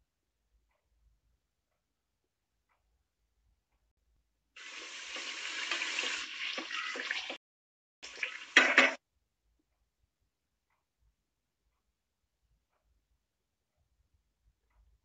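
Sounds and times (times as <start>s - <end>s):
curry sizzling in a pot: 4.6s - 7.4s, 8.0s - 9.0s.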